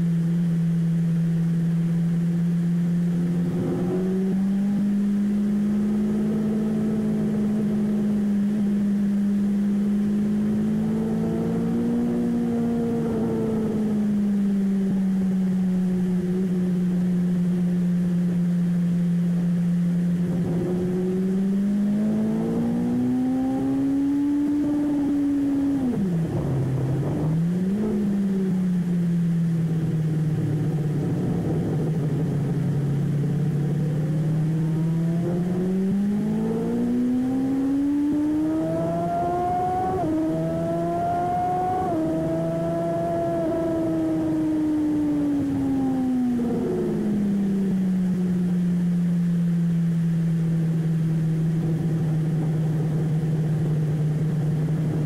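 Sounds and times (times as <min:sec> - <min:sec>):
race car engine revving: 0:03.1 - 0:08.3, 0:10.0 - 0:14.1, 0:20.2 - 0:28.9, 0:29.8 - 0:47.3.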